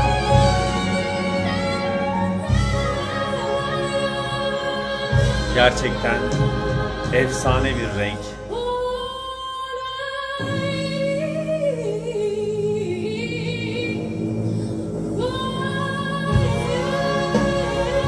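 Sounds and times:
woman singing: 0.0s - 14.2s, 15.2s - 18.0s
band accompaniment: 5.2s - 8.4s.

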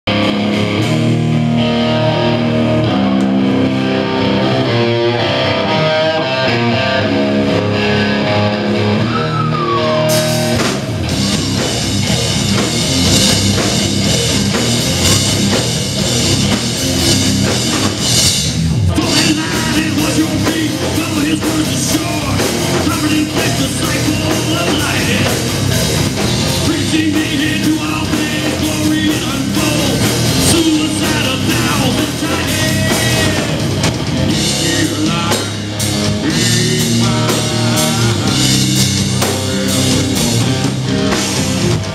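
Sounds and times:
heavy metal band playing live: 0.0s - 41.9s
electric guitar riff: 0.1s - 41.9s
drums and cymbals: 9.4s - 41.9s
person singing: 18.9s - 25.5s, 26.6s - 33.7s, 34.3s - 39.8s.

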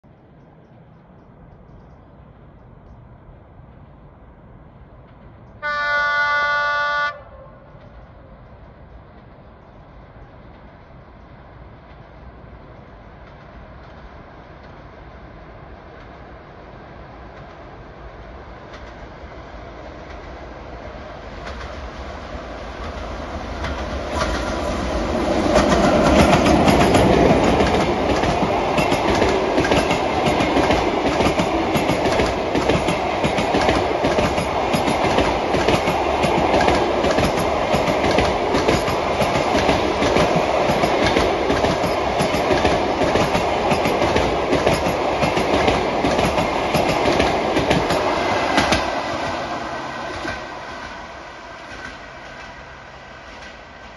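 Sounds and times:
locomotive passing: 0.1s - 53.9s
train wheels clacking on rails: 17.2s - 52.6s.

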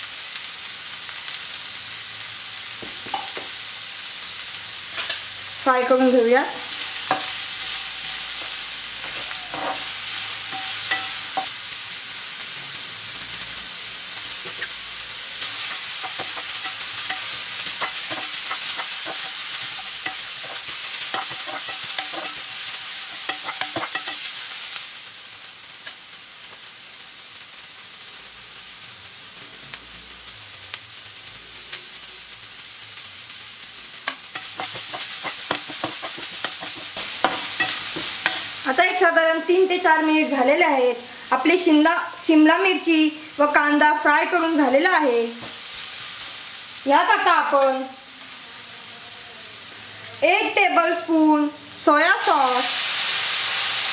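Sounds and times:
vegetables sizzling in oil: 0.0s - 53.9s
metal spoon scraping a pan: 4.9s - 5.4s, 6.6s - 11.6s, 15.4s - 24.4s, 34.1s - 38.6s.

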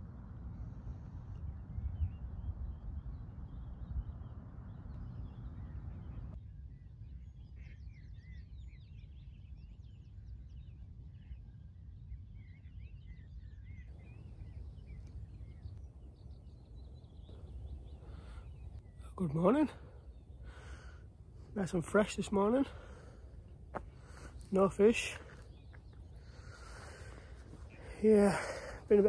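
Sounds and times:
birds singing: 0.9s - 29.0s
steady low rumble: 13.1s - 29.0s.

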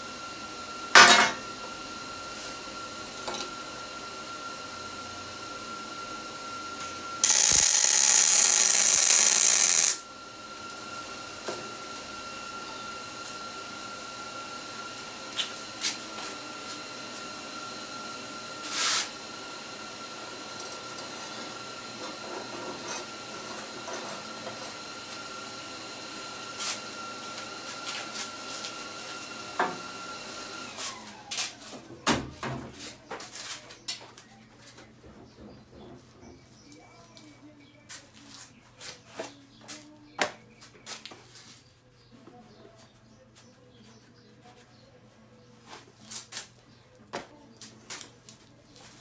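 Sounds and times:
shop machine whine: 0.0s - 32.3s.

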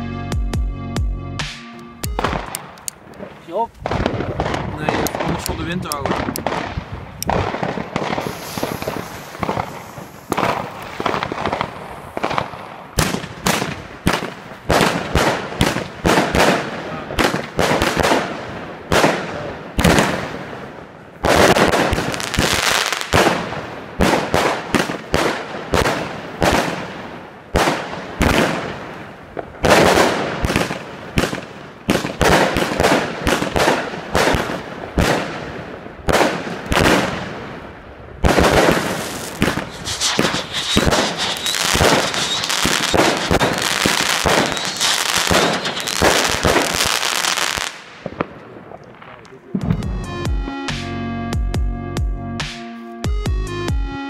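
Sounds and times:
firework cake bangs: 38.2s - 48.3s.

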